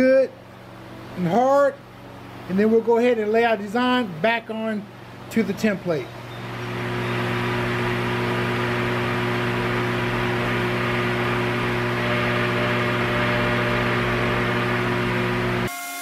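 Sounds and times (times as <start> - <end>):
motor humming: 6.1 - 15.7.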